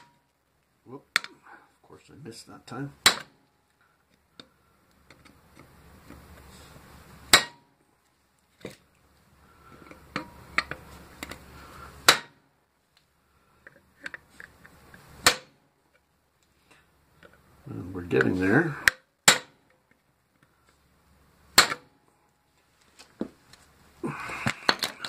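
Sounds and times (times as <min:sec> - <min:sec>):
hammer striking steel chisel: 0:03.0 - 0:03.4, 0:07.3 - 0:07.6, 0:12.1 - 0:12.4, 0:15.2 - 0:15.6.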